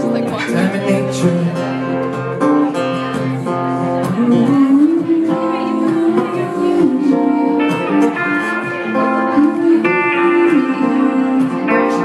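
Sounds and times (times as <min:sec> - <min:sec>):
sliding lead guitar line: 0:00.0 - 0:12.0
strummed acoustic guitar: 0:00.0 - 0:12.0.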